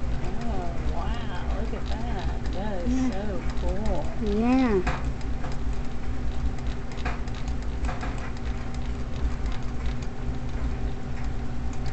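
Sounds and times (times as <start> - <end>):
faint clicks and rustles: 0.0 - 11.9
low room hum: 0.0 - 11.9.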